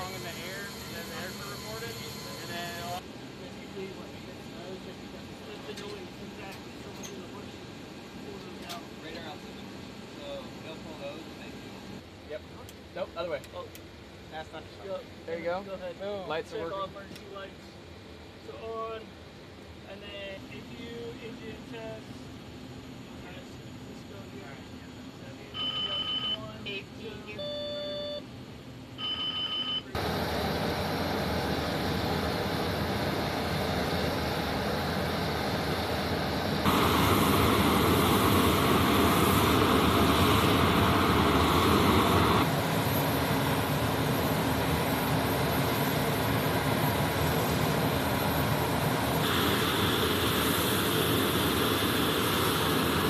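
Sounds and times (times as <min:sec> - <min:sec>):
jet turbines running: 0:00.0 - 0:25.7, 0:29.9 - 0:53.0
short electronic tones: 0:25.6 - 0:28.2.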